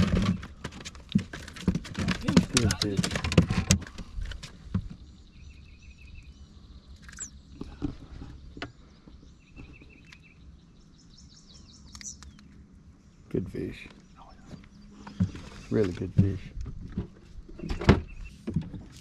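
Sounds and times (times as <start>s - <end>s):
bird chirping: 4.9s - 15.9s, 17.5s - 18.4s.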